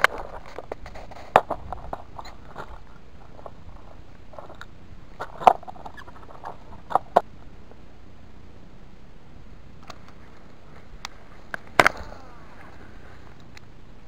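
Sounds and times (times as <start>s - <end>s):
scratchy handling rustle: 0.0s - 7.3s.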